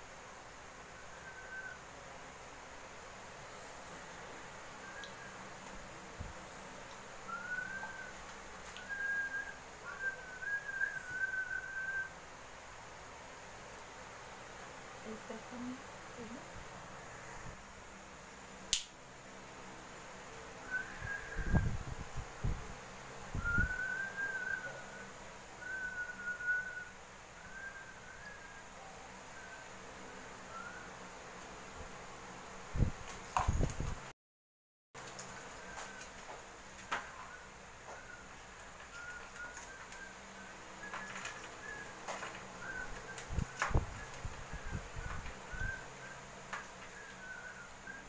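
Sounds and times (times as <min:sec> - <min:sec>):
thin whistle-like tone: 0:00.8 - 0:01.9, 0:04.8 - 0:05.6, 0:07.3 - 0:12.2, 0:20.6 - 0:21.8, 0:23.4 - 0:31.0, 0:35.6 - 0:36.1, 0:37.0 - 0:46.3, 0:46.9 - 0:48.0
person whistling: 0:07.3 - 0:08.2, 0:08.8 - 0:12.1, 0:23.4 - 0:25.0, 0:38.9 - 0:42.0.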